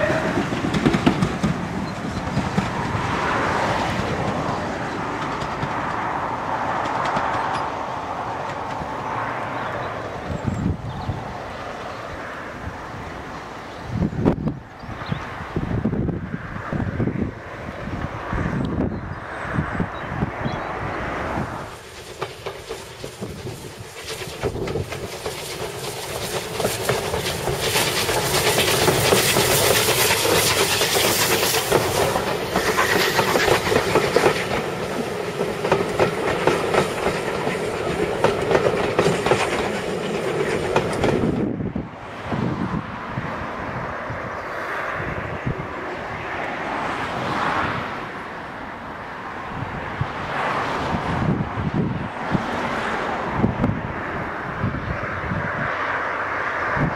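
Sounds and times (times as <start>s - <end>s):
train wheels clattering: 0.0s - 9.8s, 21.6s - 41.5s
steam locomotive exhaust beats: 21.4s - 41.7s.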